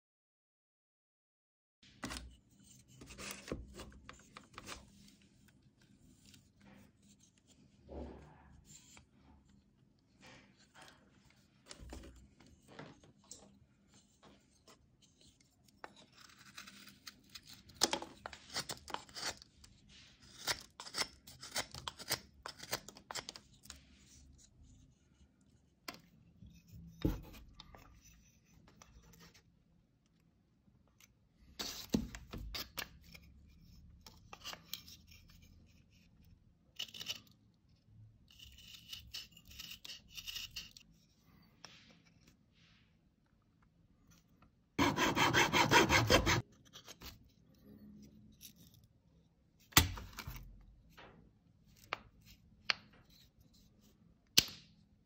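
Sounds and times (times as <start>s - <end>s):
knife carving wood: 13.9s - 29.4s, 31.0s - 37.5s, 38.2s - 41.1s, 44.8s - 47.3s.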